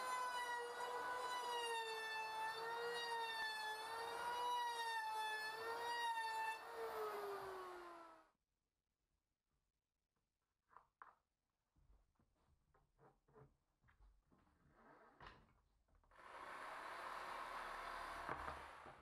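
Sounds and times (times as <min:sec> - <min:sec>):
electric router whining: 0:00.0 - 0:08.2.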